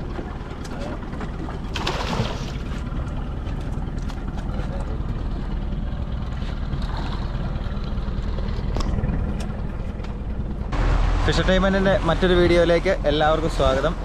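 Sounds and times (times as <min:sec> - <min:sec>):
boat low rumble: 0:00.0 - 0:14.0
fish splashing at water surface: 0:01.4 - 0:04.7.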